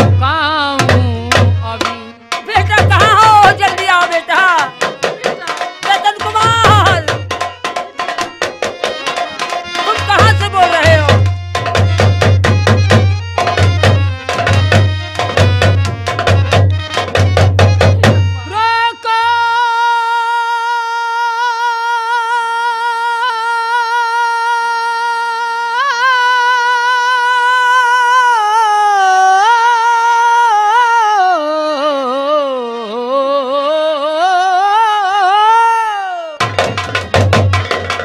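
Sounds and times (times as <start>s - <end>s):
woman singing: 0.0s - 7.4s, 9.6s - 11.2s, 18.0s - 36.4s
tabla: 0.0s - 33.4s, 34.4s - 38.0s.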